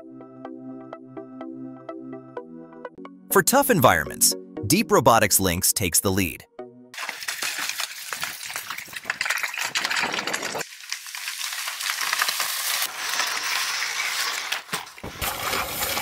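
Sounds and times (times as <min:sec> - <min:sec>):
wheels crackling through dry leaves: 0:07.0 - 0:16.0.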